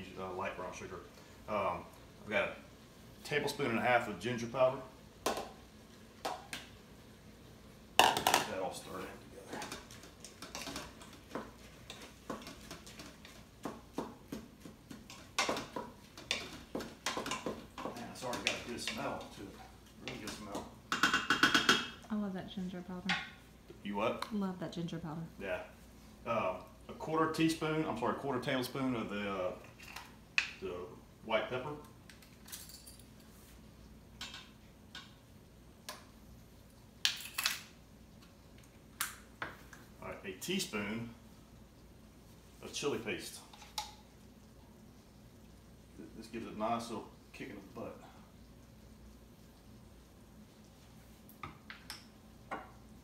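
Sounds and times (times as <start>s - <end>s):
wooden spoon scraping metal pot: 14.7s - 21.2s.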